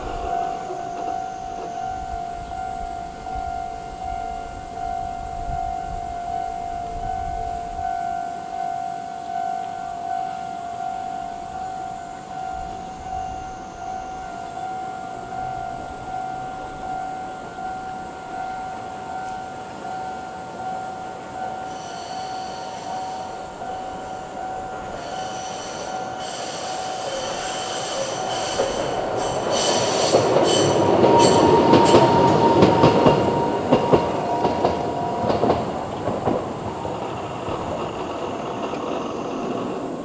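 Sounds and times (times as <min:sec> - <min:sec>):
wheels squealing: 0:00.0 - 0:03.4, 0:21.4 - 0:40.0
level crossing alarm ringing: 0:00.0 - 0:37.6
tram passing: 0:00.0 - 0:40.0.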